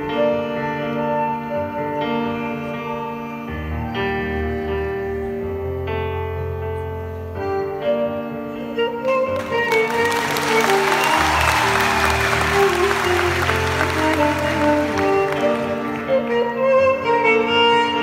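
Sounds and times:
kamancheh and keyboard music: 0:07.1 - 0:18.0
audience applause: 0:09.3 - 0:16.5.

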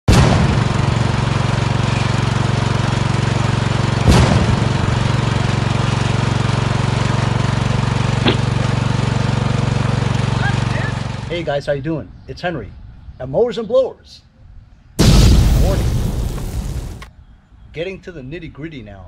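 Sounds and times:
lawn tractor engine running: 0:00.5 - 0:11.3
burst of noise: 0:15.0 - 0:17.1.

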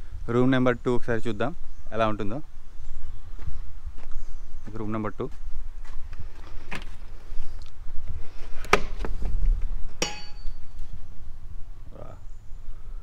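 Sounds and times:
short metallic ring: 0:10.0 - 0:10.6.

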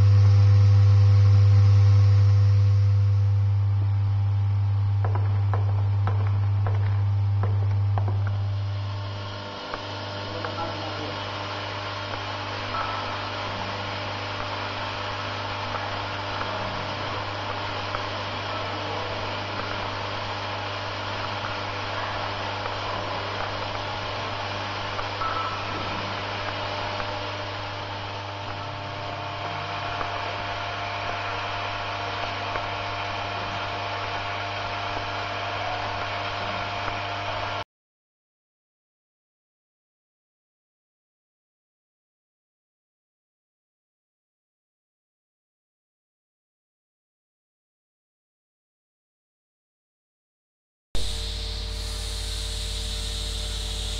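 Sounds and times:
low electromagnetic hum: 0:00.0 - 0:37.6, 0:51.0 - 0:53.9.

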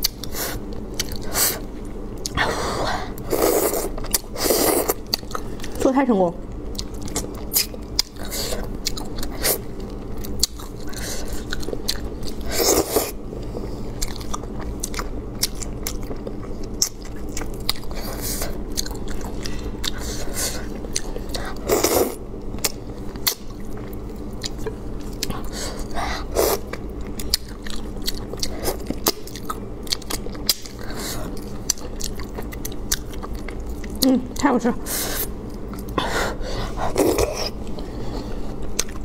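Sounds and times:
wet chewing and lip-smacking: 0:00.0 - 0:01.3, 0:06.5 - 0:12.9, 0:14.0 - 0:25.9, 0:26.6 - 0:34.5, 0:38.6 - 0:39.0.

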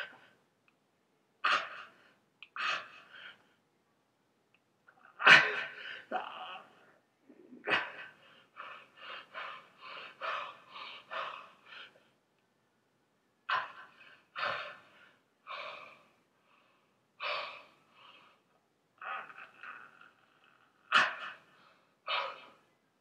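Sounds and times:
person panting heavily: 0:07.7 - 0:12.0, 0:13.5 - 0:16.1.

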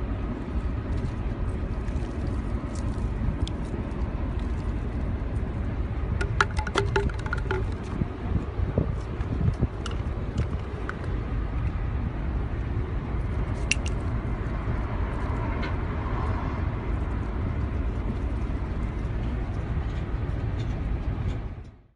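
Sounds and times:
low rumbling background noise: 0:00.0 - 0:21.9.

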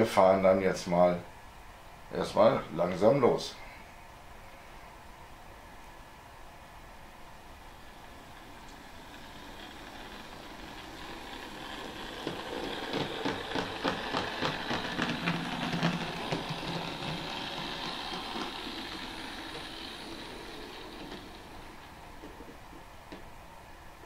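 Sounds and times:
model railcar motor rumbling: 0:07.2 - 0:23.2
wheels clicking on track: 0:07.6 - 0:23.2.

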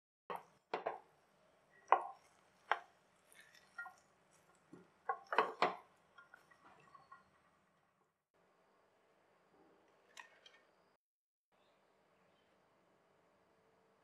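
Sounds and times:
wooden spatula knocking and scraping pot: 0:00.3 - 0:01.2, 0:01.8 - 0:07.6.

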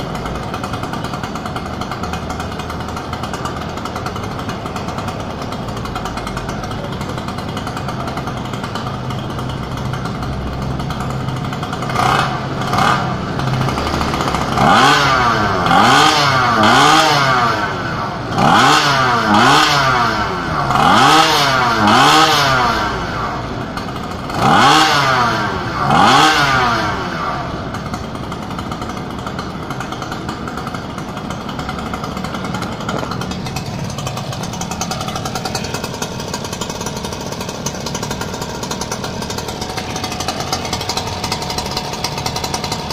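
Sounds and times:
engine idling: 0:00.0 - 0:42.9
two-stroke engine revving: 0:00.0 - 0:42.9.

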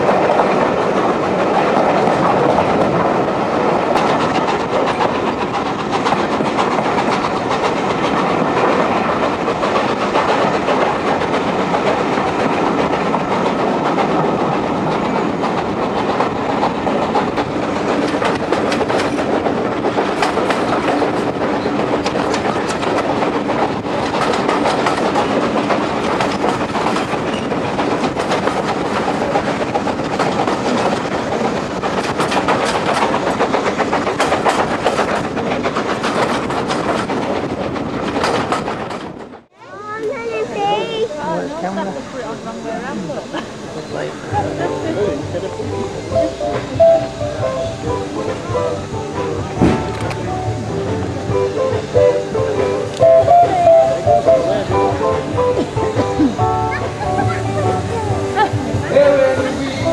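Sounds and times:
wheels clicking over rail joints: 0:00.0 - 0:40.9, 0:42.6 - 0:59.9
train rumble and air rush: 0:00.0 - 0:59.9.

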